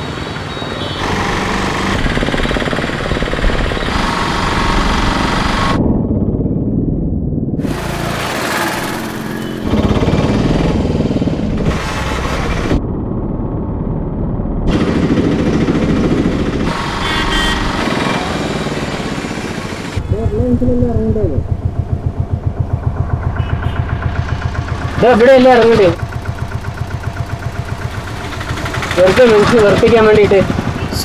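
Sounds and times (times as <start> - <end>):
motorcycles and scooters passing: 0.0 - 6.4, 7.7 - 12.8, 14.7 - 31.0
vehicle engine idling: 13.4 - 31.0.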